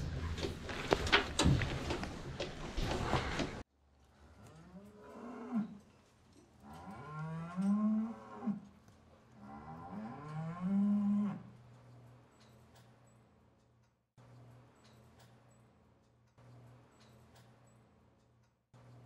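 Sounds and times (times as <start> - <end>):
cow mooing: 6.6 - 8.7, 9.4 - 11.6.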